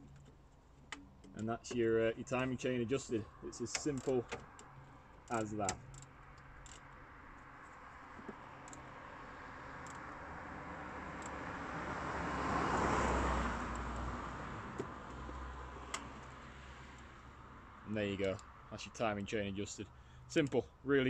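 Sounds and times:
road vehicle passing by: 0:04.6 - 0:18.8.

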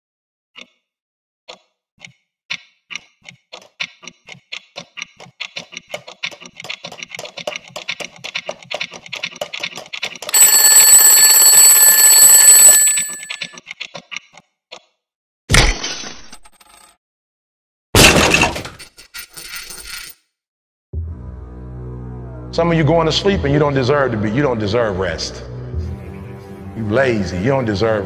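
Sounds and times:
alarm clock bell ringing: 0:10.3 - 0:13.6
alarm clock ticking: 0:10.3 - 0:13.6.

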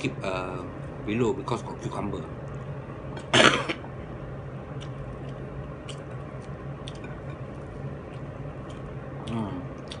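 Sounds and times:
steady low hum: 0:00.0 - 0:10.0
soft chewing: 0:04.7 - 0:10.0.

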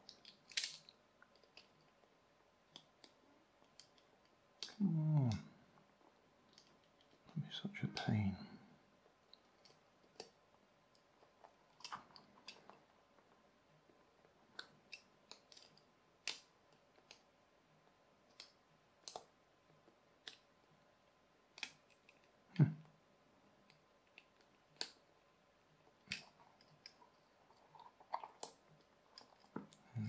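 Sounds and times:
plastic parts clicking: 0:00.0 - 0:01.8.

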